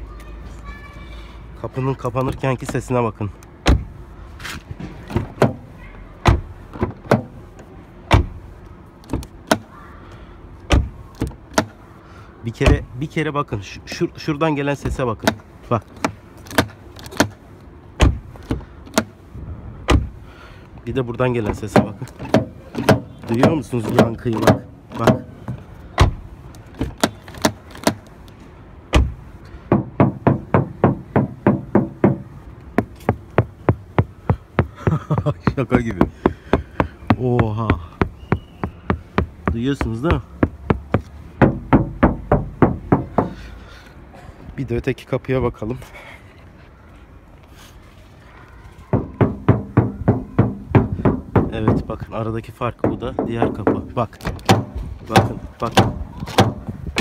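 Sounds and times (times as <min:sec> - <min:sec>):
knuckles knocking on car door: 0:29.7 - 0:43.4, 0:48.9 - 0:52.0, 0:52.8 - 0:56.7.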